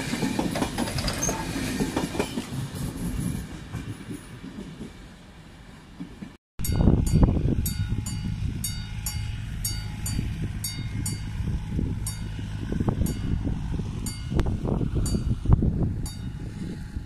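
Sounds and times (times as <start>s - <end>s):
crossing warning bell ringing: 6.6s - 17.0s
low rumble: 6.6s - 17.0s.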